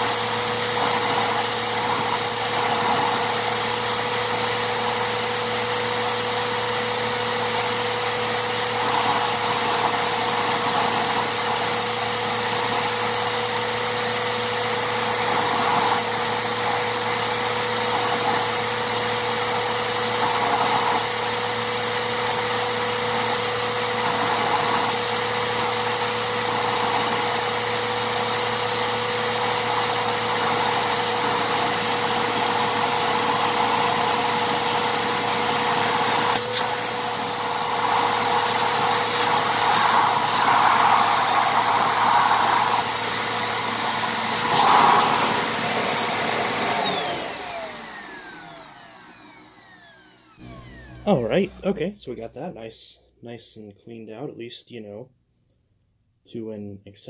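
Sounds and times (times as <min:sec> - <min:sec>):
vacuum cleaner running: 0:00.0 - 0:52.0.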